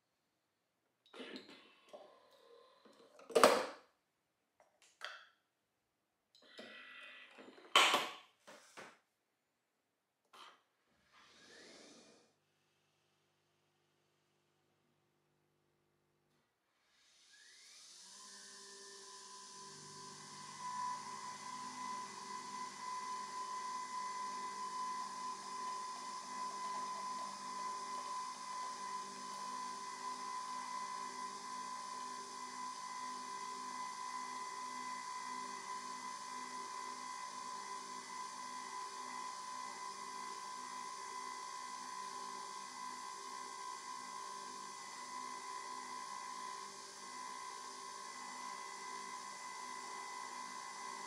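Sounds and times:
coffee machine whirring whine: 16.9 - 51.0.

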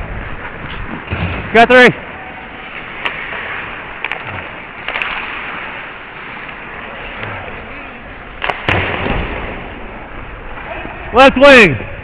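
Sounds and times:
stick hitting puck: 2.8 - 5.7.

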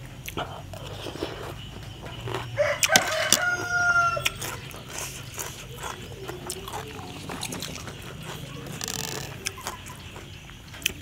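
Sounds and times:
rooster crowing: 2.3 - 4.8.

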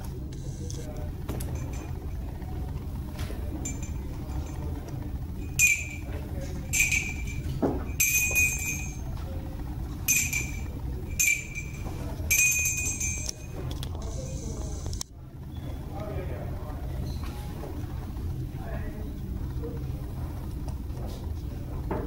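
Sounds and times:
low room hum: 0.0 - 22.0
high metallic chime: 3.5 - 4.8, 5.4 - 9.1, 10.1 - 13.6.

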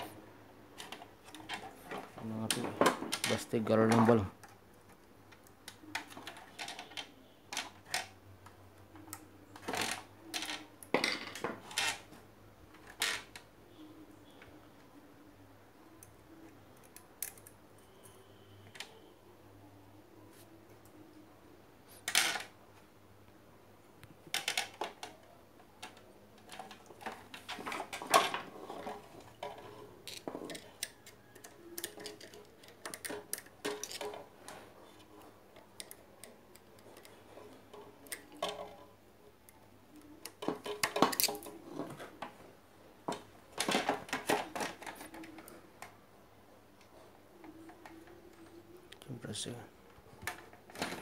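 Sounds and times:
small metal tools clicking and rattling: 25.8 - 34.6, 40.0 - 41.6.

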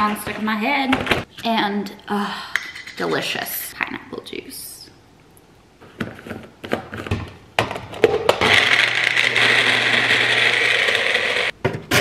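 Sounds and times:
blender running: 8.4 - 11.5.

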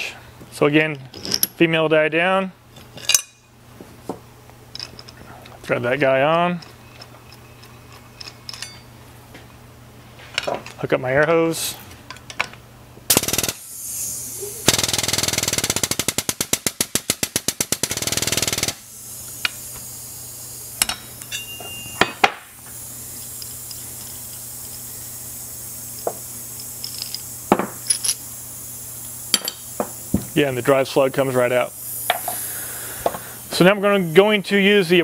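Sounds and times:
air hiss: 13.1 - 15.4, 18.2 - 34.2.

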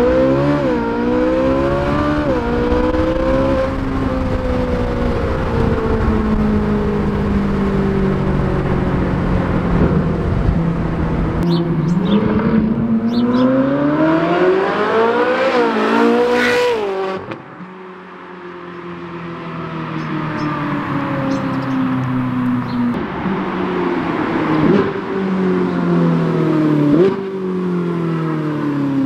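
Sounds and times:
road rumble: 0.0 - 29.0
sports car engine: 0.0 - 29.0.

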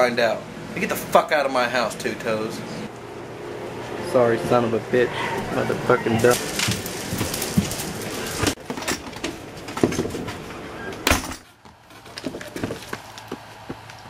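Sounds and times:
footsteps: 5.2 - 10.5, 11.4 - 14.0.

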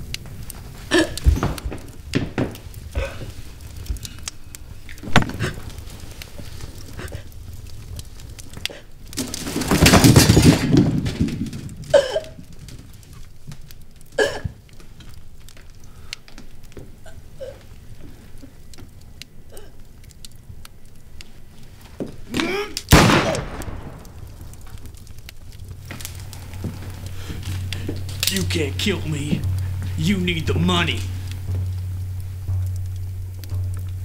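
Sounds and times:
rough crashing burst: 22.9 - 24.6.

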